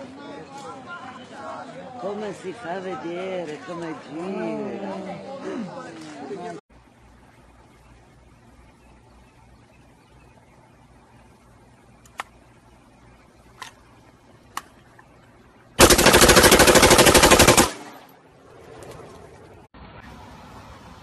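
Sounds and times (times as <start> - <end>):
sharp clicks: 12.0 - 12.4
rifle automatic fire: 15.8 - 18.1.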